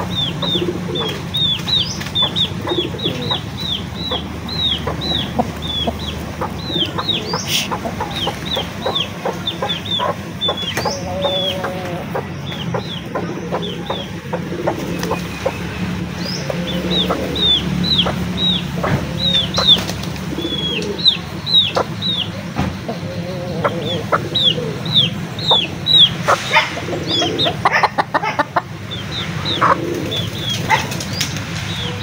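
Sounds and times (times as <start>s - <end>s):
chicks peeping: 0.0s - 32.0s.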